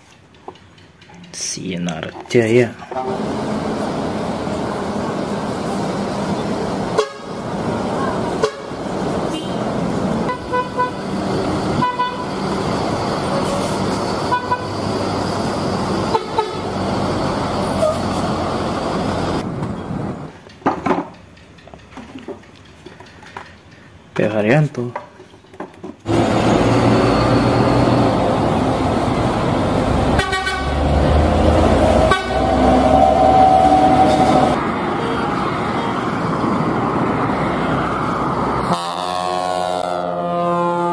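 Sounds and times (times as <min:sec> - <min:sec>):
bus traffic: 0:00.0 - 0:40.9
person speaking: 0:01.2 - 0:02.9
bus engine running: 0:02.4 - 0:20.4, 0:26.0 - 0:40.9
bus horn toots: 0:03.0 - 0:03.3, 0:06.9 - 0:07.4, 0:08.3 - 0:11.1, 0:11.7 - 0:12.4, 0:14.2 - 0:14.8, 0:16.1 - 0:16.7, 0:30.1 - 0:30.9, 0:31.9 - 0:34.6, 0:38.6 - 0:40.9.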